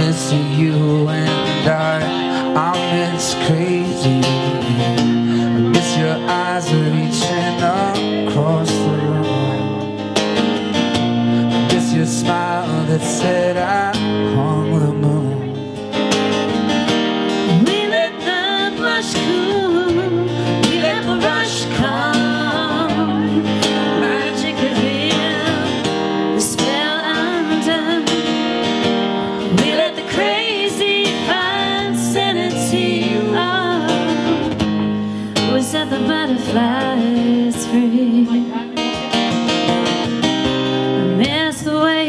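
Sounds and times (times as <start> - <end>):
person singing: 0.0 - 9.8, 17.4 - 28.4, 29.4 - 38.6
acoustic guitar strumming: 0.0 - 42.0.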